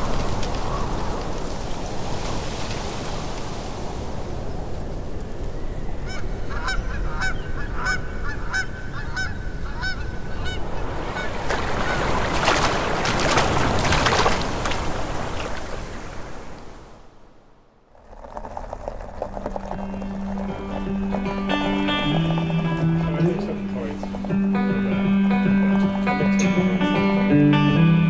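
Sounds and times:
splashing in shallow water: 0.0s - 4.5s, 10.6s - 17.0s, 17.9s - 26.6s
geese honking: 6.1s - 12.2s, 19.6s - 27.3s
river water rushing: 10.7s - 17.0s, 18.0s - 27.2s
music: 20.5s - 28.0s.

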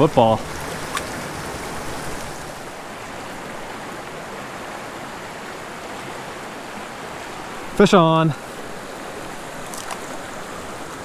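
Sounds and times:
stream running over rocks: 0.0s - 11.0s.

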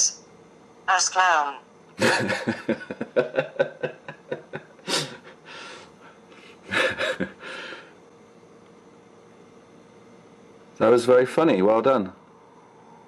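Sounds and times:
person snorting and exhaling: 4.8s - 5.9s
soft breath: 4.9s - 6.6s.

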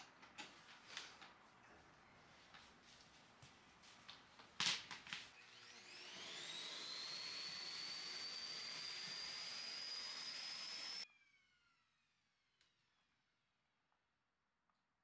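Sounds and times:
vacuum cleaner motor whine: 5.4s - 13.0s.

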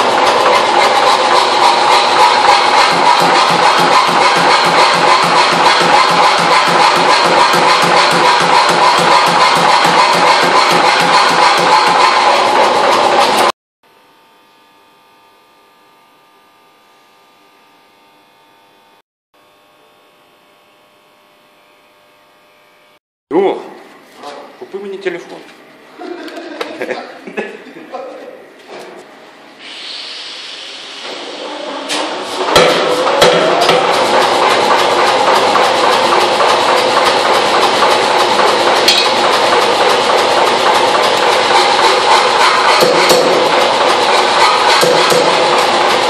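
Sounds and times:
power hammer idling: 0.0s - 13.5s, 32.4s - 46.0s.

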